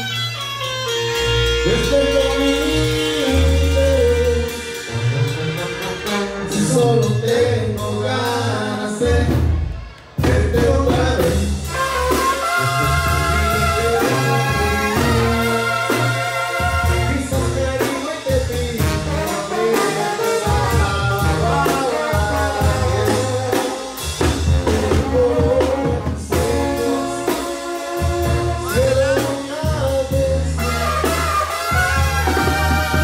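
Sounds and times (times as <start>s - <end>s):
pulsing bass line: 0.0s - 19.3s
trumpets and trombones: 0.0s - 33.0s
person singing: 1.6s - 4.8s, 5.6s - 9.5s, 16.9s - 30.6s.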